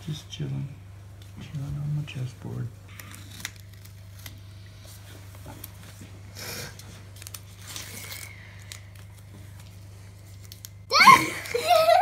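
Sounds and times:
steady low hum: 0:00.0 - 0:12.0
tape tearing rustle: 0:02.9 - 0:04.4, 0:06.7 - 0:09.7.

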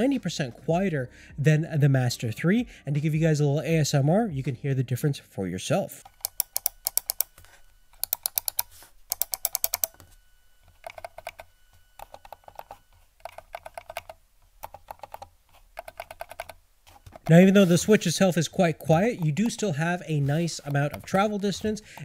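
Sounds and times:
sharp mouse-button clicks: 0:06.2 - 0:07.3, 0:08.0 - 0:10.0, 0:10.8 - 0:17.4.

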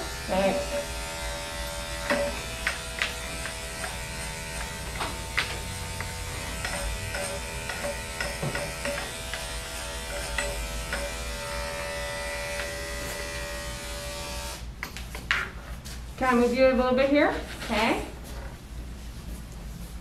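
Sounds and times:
electric clipper running: 0:00.0 - 0:14.7.

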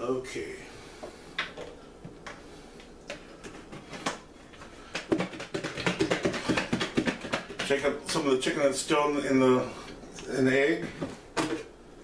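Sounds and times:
plastic tubs knocking: 0:04.9 - 0:08.2.

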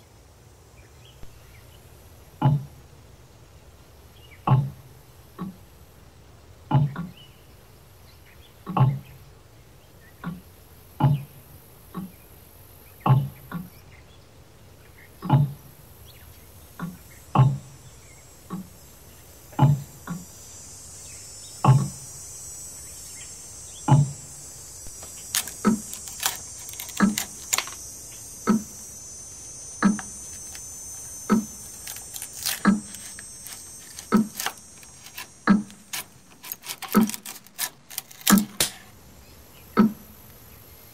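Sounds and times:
thin hiss: 0:16.1 - 0:40.9
sharp clicks: 0:24.8 - 0:27.9, 0:29.4 - 0:38.9.

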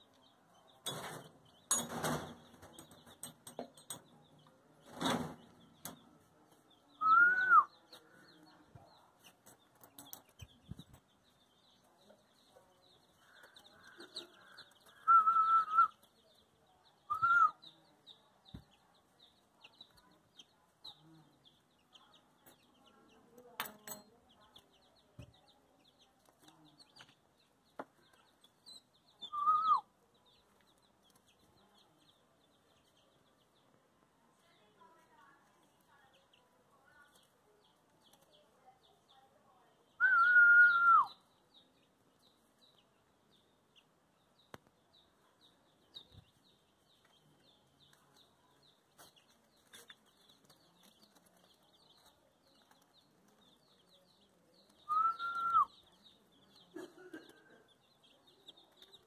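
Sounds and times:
chicks peeping: 0:00.0 - 0:23.5, 0:24.1 - 0:34.0, 0:40.7 - 0:59.0
person whistling calls: 0:07.0 - 0:07.7, 0:15.0 - 0:16.0, 0:17.1 - 0:17.6, 0:29.3 - 0:29.8, 0:40.0 - 0:41.2, 0:54.9 - 0:55.7.

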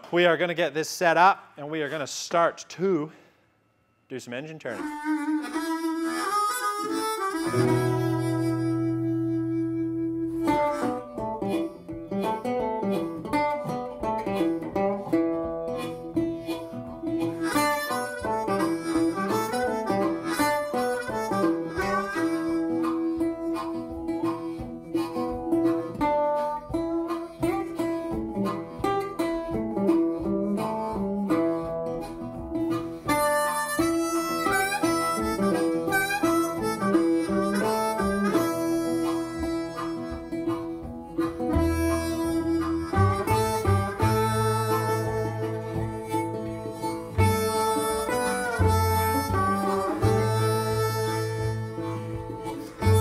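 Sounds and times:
harmonica playing long notes: 0:04.7 - 0:13.6, 0:14.3 - 0:53.0
picked acoustic guitar: 0:04.8 - 0:53.0.

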